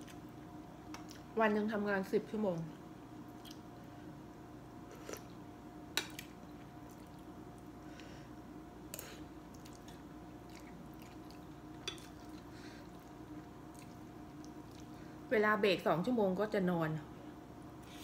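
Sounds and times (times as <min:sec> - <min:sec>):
steady low hum: 0:00.0 - 0:18.0
faint chewing: 0:09.0 - 0:15.0.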